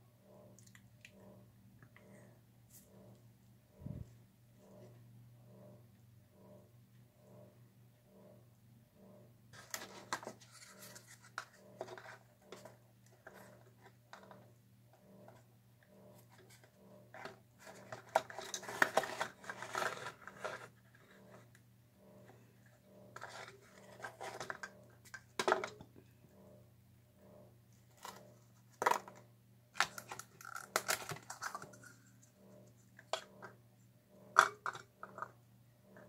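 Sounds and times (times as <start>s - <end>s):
low steady hum: 0.0s - 36.0s
plastic cups set on wire rack: 23.2s - 26.0s, 34.3s - 35.4s.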